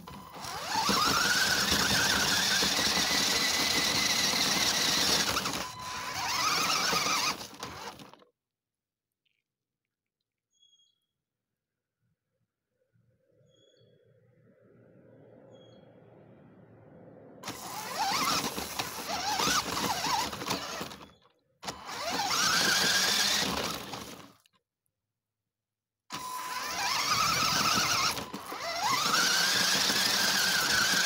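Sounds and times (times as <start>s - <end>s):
radio-controlled car motor whine: 0.0s - 8.2s, 17.4s - 24.4s, 26.1s - 31.0s
wheels rushing through grass: 0.0s - 8.2s, 17.4s - 24.4s, 26.4s - 31.0s.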